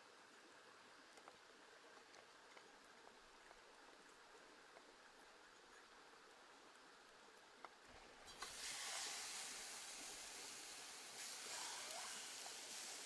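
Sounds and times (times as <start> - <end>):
chicken sizzling in a frying pan: 8.3 - 13.0.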